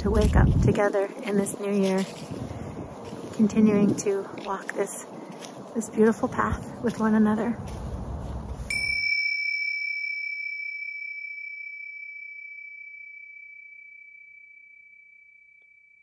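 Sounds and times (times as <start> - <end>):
meditation bell ringing: 8.7 - 16.0.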